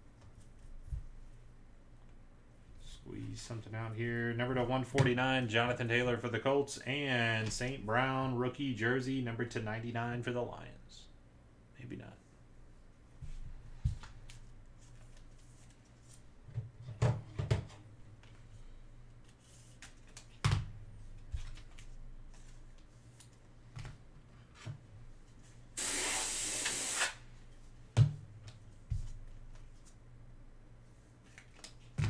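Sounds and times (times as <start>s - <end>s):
trading cards handled on desk: 19.2s - 24.7s, 31.2s - 32.0s
steady hiss: 25.6s - 27.4s.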